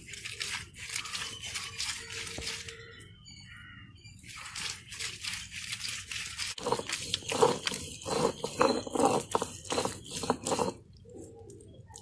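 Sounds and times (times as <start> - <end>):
stone roller scraping and crunching: 4.3 - 10.9.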